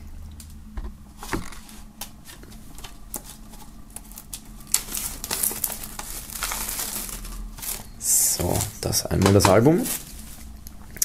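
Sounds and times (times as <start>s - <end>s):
plastic film crinkling: 1.2s - 10.8s
knife cutting plastic wrap: 2.8s - 10.5s.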